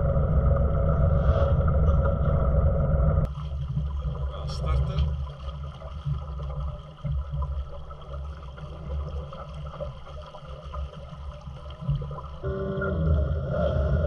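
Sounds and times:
water lapping around boat: 3.3 - 12.5.

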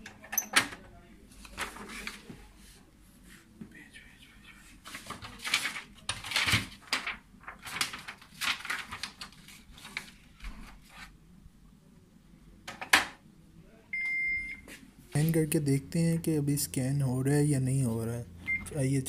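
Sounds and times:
paper rustling and shuffling: 1.3 - 3.5, 4.7 - 11.2.

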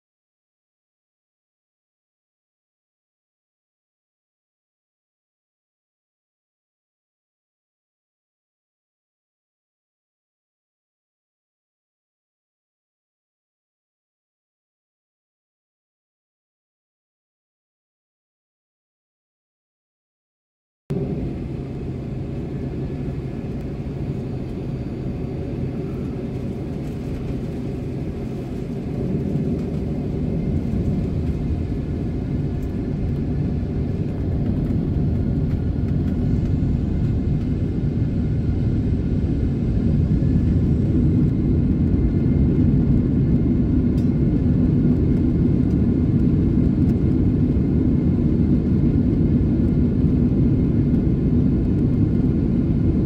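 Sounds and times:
deep runway rumble: 20.9 - 53.0
jet engine noise: 20.9 - 53.0.

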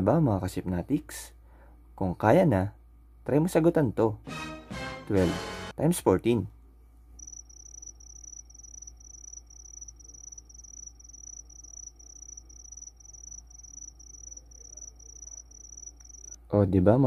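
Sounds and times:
cricket chirping: 7.2 - 16.4.

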